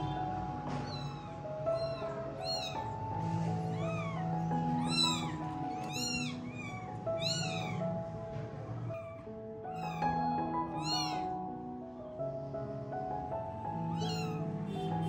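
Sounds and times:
background music with held notes: 0.0 - 15.0
kittens mewing: 0.8 - 8.1, 8.8 - 11.4, 13.9 - 14.6.

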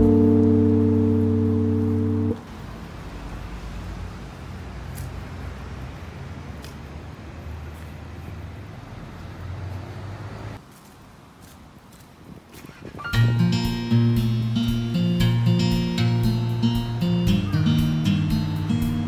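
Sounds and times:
low rumble of traffic: 0.0 - 19.0.

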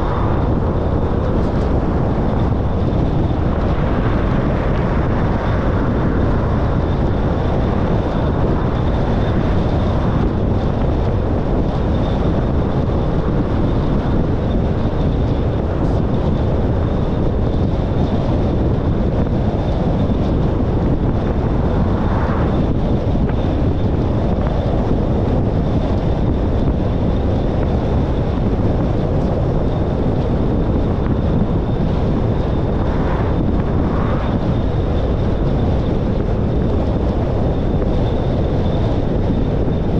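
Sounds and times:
car road and engine rumble: 0.0 - 39.9.

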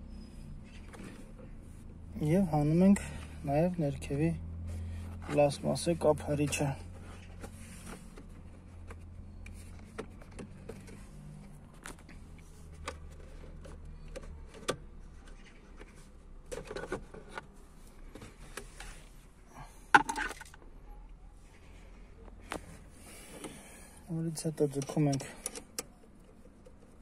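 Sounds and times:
hard plastic clicking and knocking: 19.9 - 20.6.

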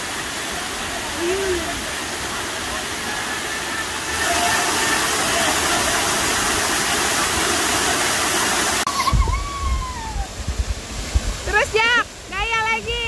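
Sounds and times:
waterfall rushing into a pool: 0.0 - 13.0
wind buffeting the microphone: 9.1 - 13.0.

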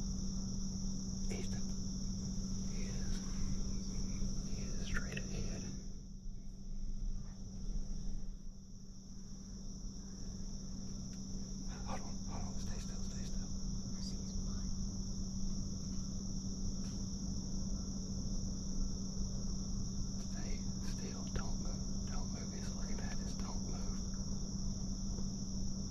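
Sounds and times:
insects droning: 0.0 - 25.9
low hum: 0.0 - 25.9
faint ticks: 10.8 - 11.5.

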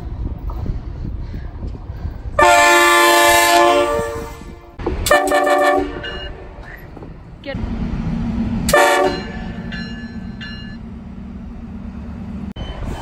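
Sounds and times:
train rumbling: 0.0 - 13.0
locomotive air horn blasts: 2.4 - 6.3, 8.7 - 9.4.

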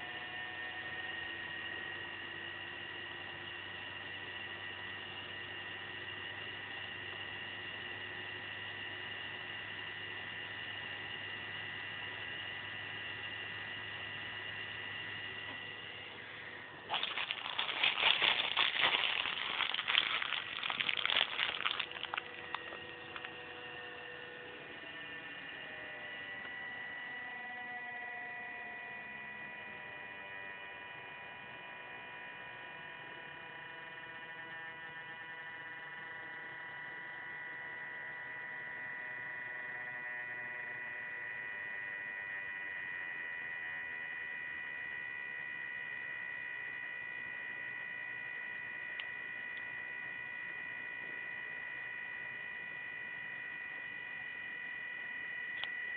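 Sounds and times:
small fan humming and whining: 0.0 - 55.9
plastic sheet crinkling: 16.9 - 23.4.

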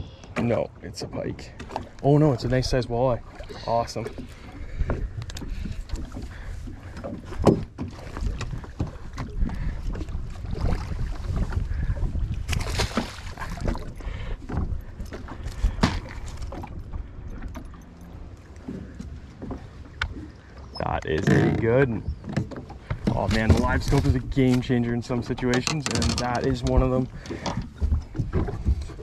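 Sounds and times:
wind rumble on microphone: 4.4 - 17.8, 22.9 - 29.0.

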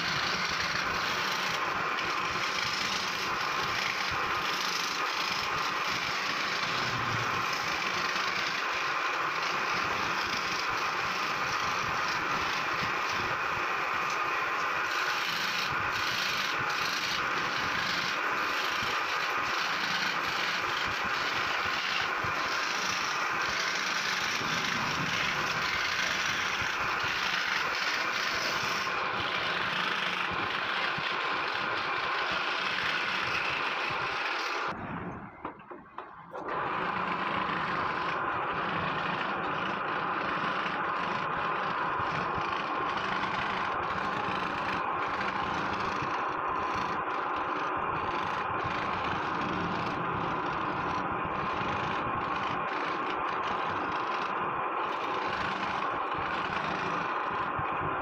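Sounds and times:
electric scroll saw cutting wood: 0.0 - 34.8, 35.5 - 58.0.

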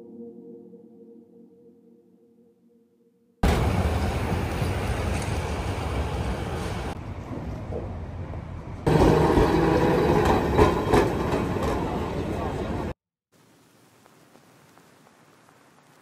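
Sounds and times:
city street traffic: 3.4 - 13.0.

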